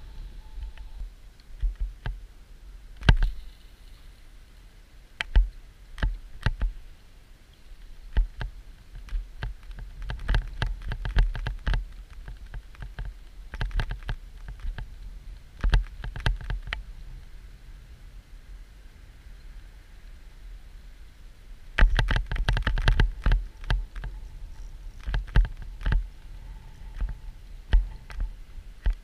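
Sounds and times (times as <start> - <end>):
sharp clicks and knocks: 5.2 - 6.8, 8.1 - 15.0, 15.6 - 16.8, 21.8 - 24.2, 25.0 - 26.1, 26.9 - 29.0.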